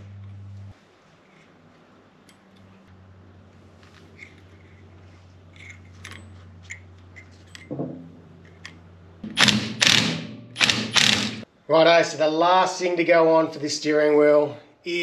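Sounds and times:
cordless power tool bursts: 9.3 - 11.4.

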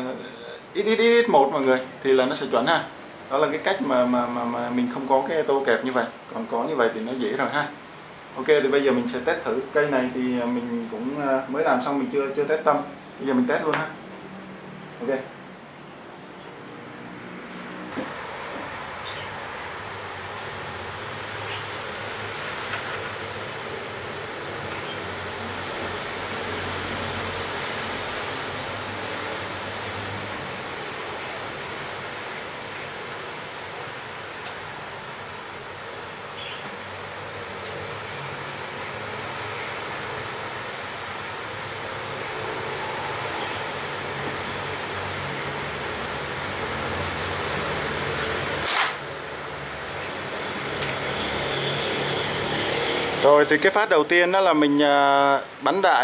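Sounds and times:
electric fan humming: 0.0 - 56.0
rushing background noise: 6.2 - 56.0
rubber bands snapping: 48.7 - 49.0.

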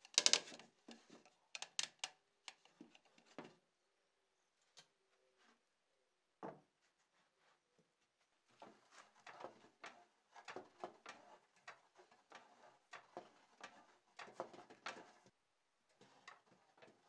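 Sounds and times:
soft wooden clicks and knocks: 0.0 - 3.6.

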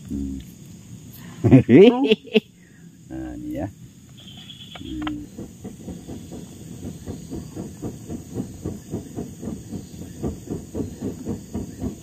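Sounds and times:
rhythmic whooshing of fanned fire: 0.0 - 12.0.

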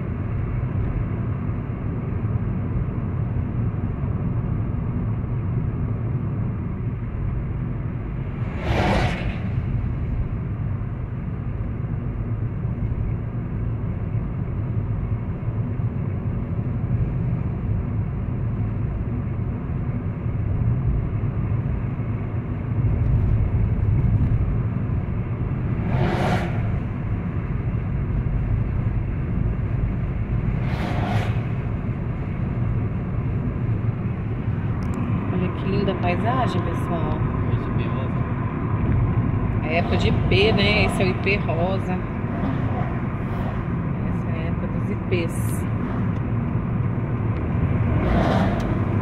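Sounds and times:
car cabin road and engine rumble: 0.0 - 49.0
whooshing swells: 8.1 - 10.4, 25.4 - 27.5, 30.4 - 32.2, 39.4 - 44.4.

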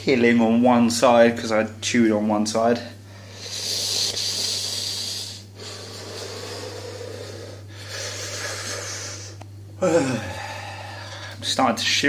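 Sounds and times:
man breathing hard through mouth: 3.1 - 11.4.

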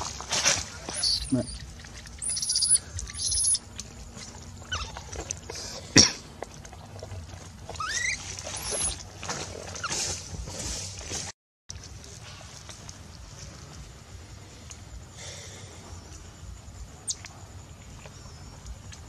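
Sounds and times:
baby monkey squeaking: 0.9 - 1.6, 2.2 - 3.6, 4.7 - 5.0, 7.8 - 9.0.

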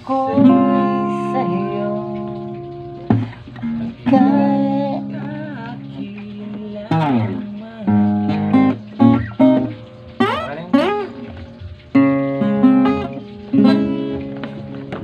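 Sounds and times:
acoustic guitar playing: 0.0 - 15.0.

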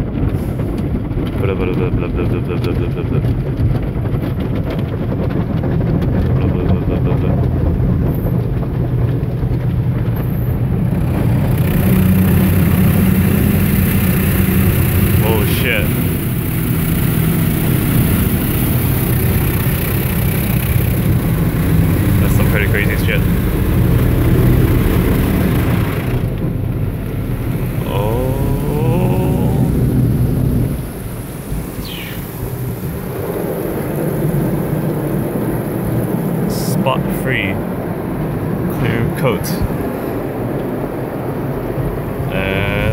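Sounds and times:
car wash machinery rumbling: 0.0 - 42.9
steady hum tone: 8.0 - 42.9
wavering gliding pitched sound: 11.0 - 36.5
rushing hiss: 27.2 - 36.6.

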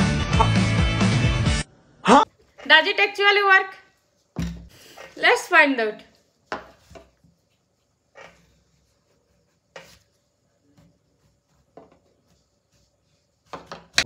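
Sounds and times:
knife cutting potato on wood: 13.4 - 14.0.

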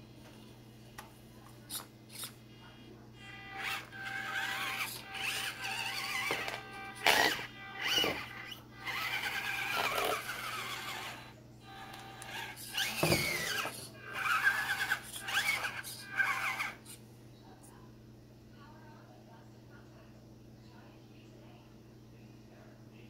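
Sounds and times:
small electric motor whining: 1.7 - 2.4, 3.2 - 17.0.

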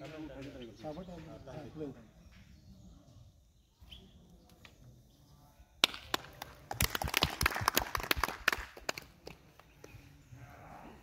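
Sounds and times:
people clapping: 5.8 - 10.0.

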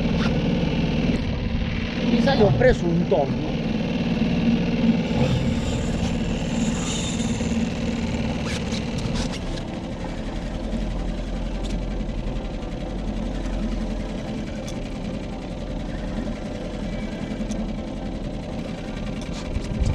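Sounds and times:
outboard motor running: 0.0 - 19.9.

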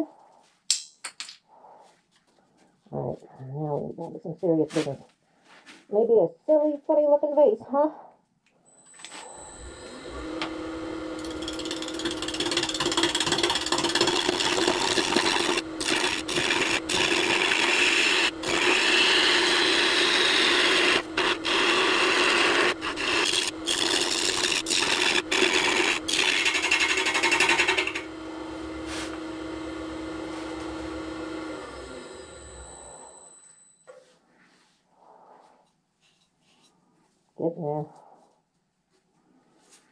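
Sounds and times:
lathe motor hum: 9.2 - 33.2
gouge cutting wood: 9.9 - 31.5.

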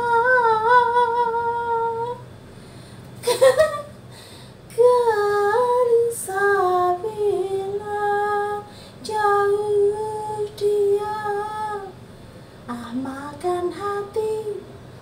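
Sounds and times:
woman singing unaccompanied: 0.0 - 2.3, 4.7 - 12.0, 12.7 - 14.8
short breaths: 2.4 - 3.2, 4.1 - 4.7, 8.7 - 9.0, 12.1 - 12.7.

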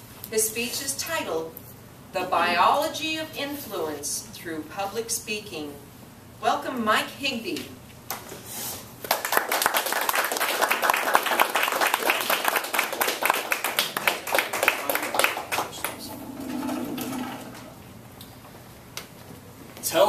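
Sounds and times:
audience applauding: 9.0 - 16.2.

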